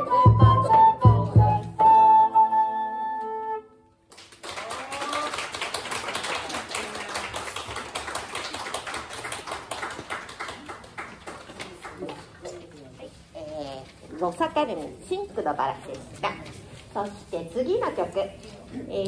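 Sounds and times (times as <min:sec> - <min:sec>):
audience applauding: 0:04.1 - 0:12.1.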